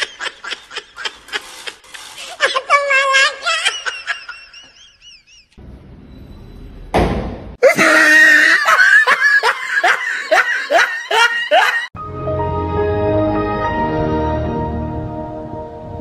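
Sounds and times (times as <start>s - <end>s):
person laughing hard: 0.0s - 1.8s, 2.4s - 5.6s, 7.6s - 11.9s.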